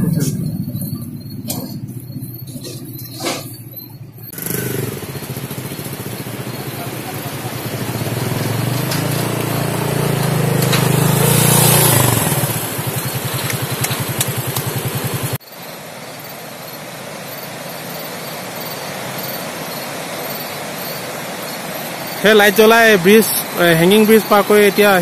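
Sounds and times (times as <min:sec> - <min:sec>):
motorcycle engine running: 0:00.0 - 0:02.9, 0:04.0 - 0:15.4.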